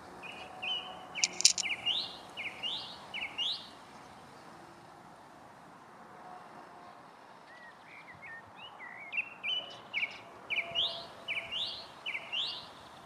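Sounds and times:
songbird singing: 0.2s - 3.7s.

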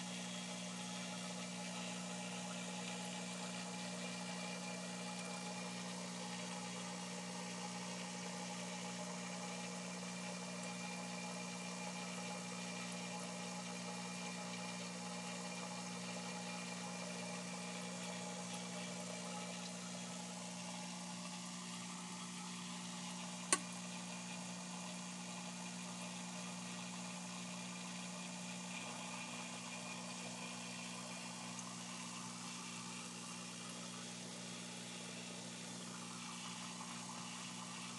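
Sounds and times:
sharp click: 23.5s - 23.7s.

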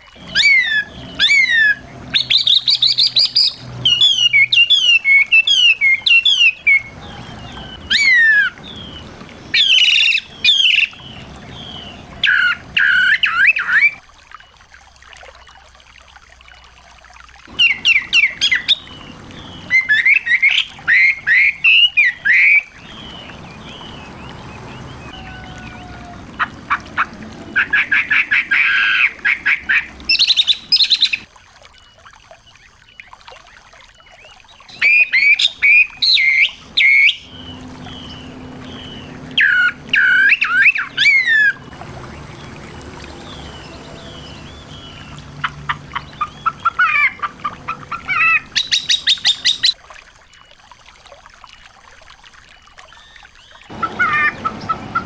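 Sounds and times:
songbird chirps and trills: 0.0s - 55.0s.

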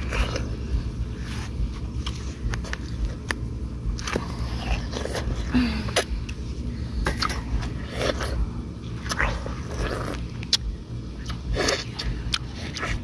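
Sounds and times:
person chewing watermelon: 0.0s - 13.0s
mouth smacks: 9.0s - 13.0s.

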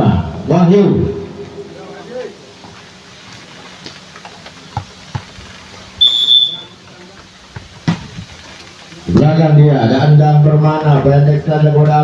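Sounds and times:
referee's whistle blast: 6.0s - 6.8s.

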